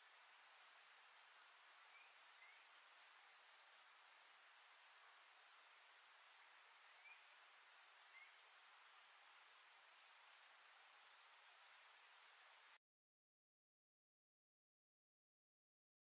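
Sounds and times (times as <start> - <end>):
insect chorus buzzing: 0.0 - 12.8
soft hiss: 0.0 - 12.8.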